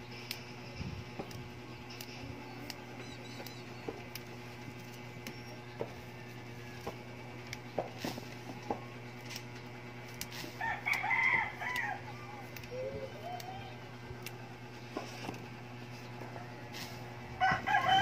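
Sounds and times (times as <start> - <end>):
beans snapping by hand: 0.1 - 0.5, 1.2 - 6.0, 6.7 - 17.1
wavering call: 11.0 - 14.2.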